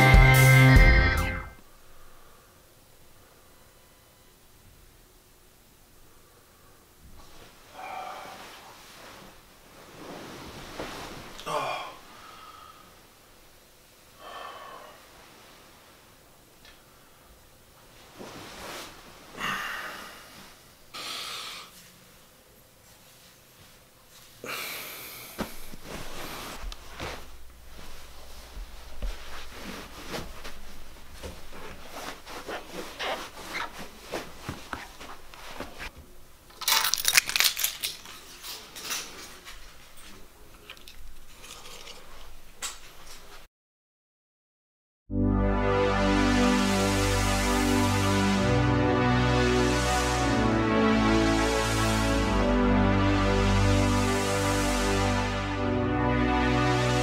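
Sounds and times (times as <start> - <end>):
comforter rustling: 7.1 - 11.4, 15.0 - 16.2, 17.8 - 20.7, 22.8 - 36.0
shuffling footsteps on carpet: 25.4 - 36.0.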